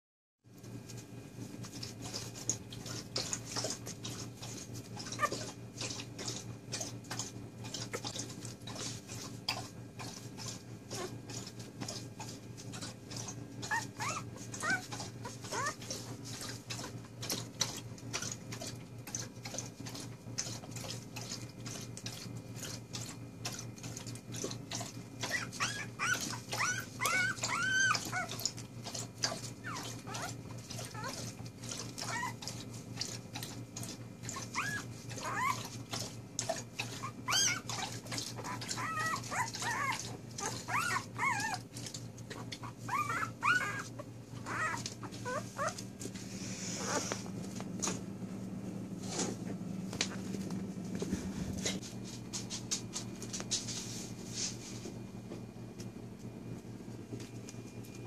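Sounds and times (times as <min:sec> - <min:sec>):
puppies squeaking and whining: 0:04.5 - 0:08.9, 0:09.5 - 0:18.4, 0:25.2 - 0:32.7, 0:34.2 - 0:47.4.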